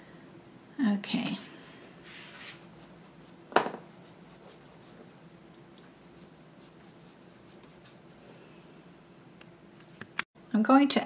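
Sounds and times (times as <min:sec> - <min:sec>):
paintbrush scratching on canvas: 0:02.0 - 0:08.2.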